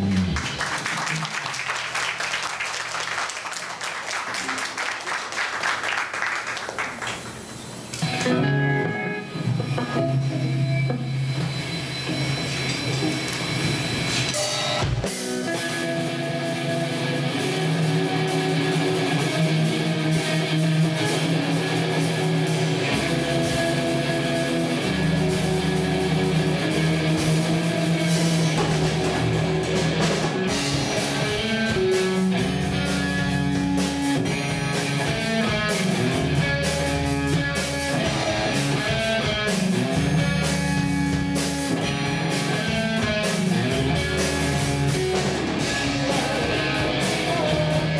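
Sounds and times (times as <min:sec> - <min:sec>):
electric guitars: 0:00.0 - 0:02.5, 0:06.5 - 0:47.9
drum kit: 0:00.0 - 0:03.2, 0:06.9 - 0:47.9
rock band playing: 0:00.0 - 0:47.9
deep bass notes: 0:15.9 - 0:47.9.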